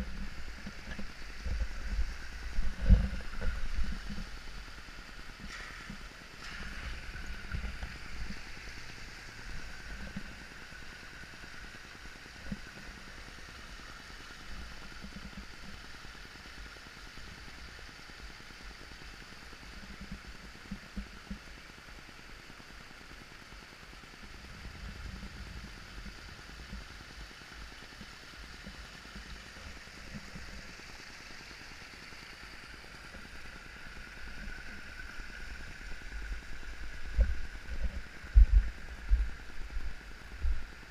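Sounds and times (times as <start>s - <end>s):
water rushing over rocks: 0.0s - 11.5s, 32.7s - 40.9s.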